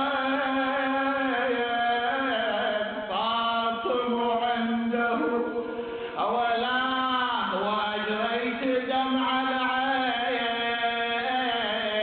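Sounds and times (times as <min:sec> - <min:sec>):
man chanting: 0:00.0 - 0:12.0.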